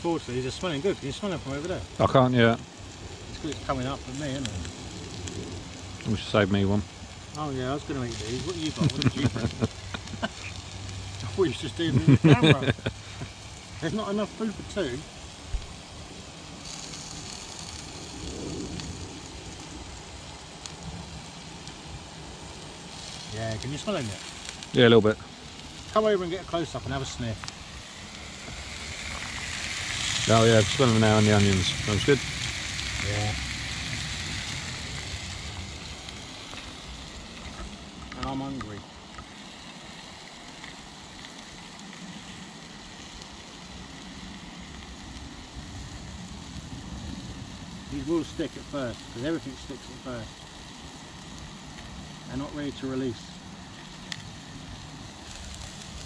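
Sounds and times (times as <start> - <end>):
low steady rumble: 0.0 - 39.2
food sizzling on a griddle: 0.0 - 56.0.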